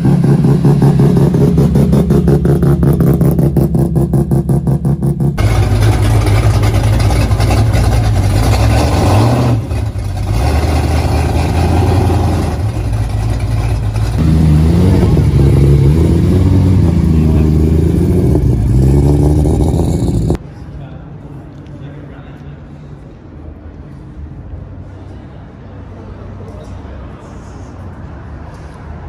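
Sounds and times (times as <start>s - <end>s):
car engine with pulsing exhaust: 0.0s - 20.4s
pickup engine rumbling: 0.0s - 20.5s.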